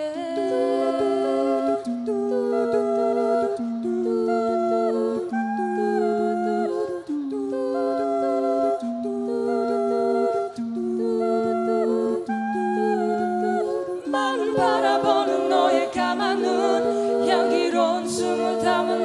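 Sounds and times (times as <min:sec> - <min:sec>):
vocal group humming chords: 0:00.0 - 0:19.0.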